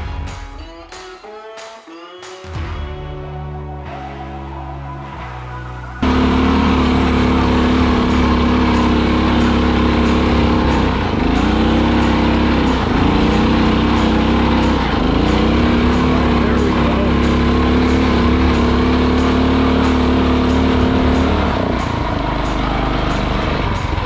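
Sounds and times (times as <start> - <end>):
motorcycle engine running: 6.0 - 24.0.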